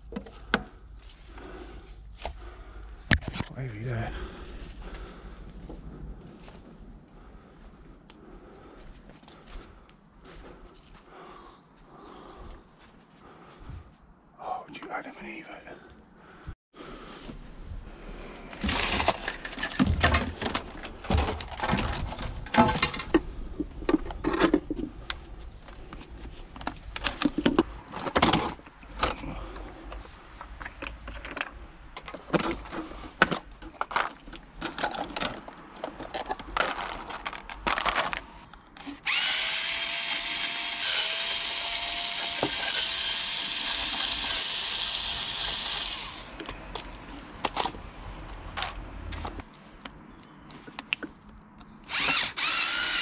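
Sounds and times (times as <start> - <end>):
power tool running: 39.0 - 46.4, 51.9 - 53.0.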